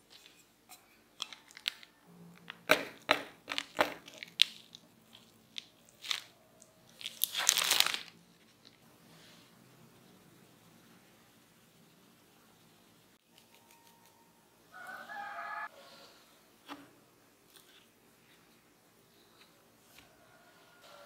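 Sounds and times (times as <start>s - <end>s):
cling film crinkling: 1.2s - 1.9s, 3.5s - 8.8s
cling film rustling pulled off: 7.0s - 8.8s.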